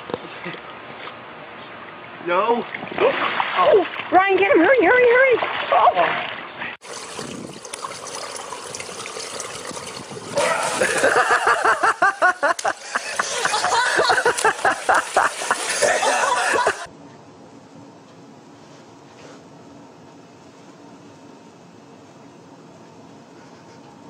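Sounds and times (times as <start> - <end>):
water splashing: 2.6 - 4.4, 5.2 - 11.9, 12.5 - 16.9
steady outdoor hiss: 6.5 - 24.0
person laughing hard: 10.4 - 16.9.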